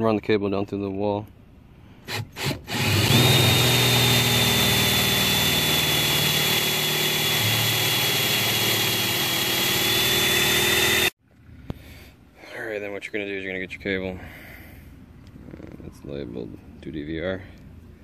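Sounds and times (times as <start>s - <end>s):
power drill boring through wood: 2.1s - 11.2s.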